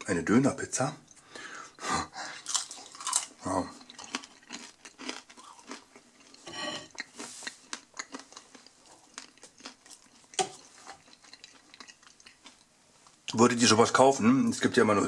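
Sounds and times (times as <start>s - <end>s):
chewing crisp crust: 2.3s - 13.2s.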